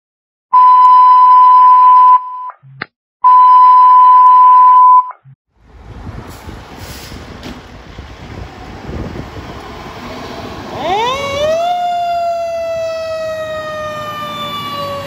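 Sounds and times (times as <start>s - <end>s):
fire engine rumbling: 5.5s - 15.0s.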